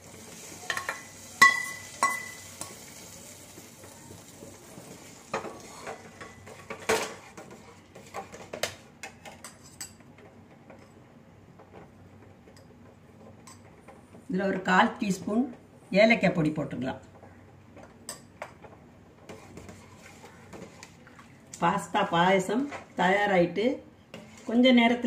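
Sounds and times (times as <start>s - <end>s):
faint sizzle: 0.0s - 10.3s
ladle stirring and knocking pot: 17.8s - 21.3s, 24.1s - 25.0s.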